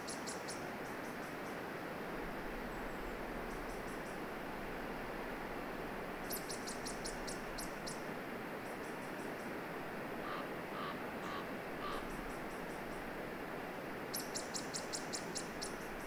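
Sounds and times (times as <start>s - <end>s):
steady rushing hiss: 0.0s - 16.0s
songbird chirping: 2.6s - 4.3s, 6.2s - 8.1s, 14.1s - 16.0s.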